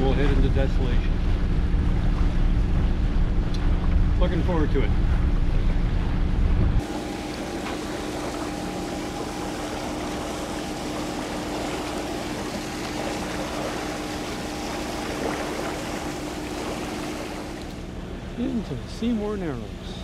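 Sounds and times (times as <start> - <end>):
wind rumble on microphone: 0.0 - 7.0
boat engine humming: 0.0 - 20.0
water hissing past hull: 6.8 - 17.9.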